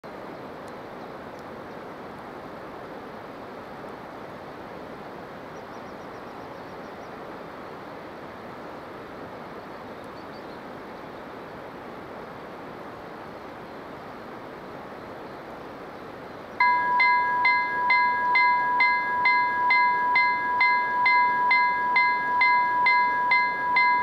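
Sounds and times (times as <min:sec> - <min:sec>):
rushing outdoor background noise: 0:00.0 - 0:24.0
faint high trill: 0:16.6 - 0:24.0.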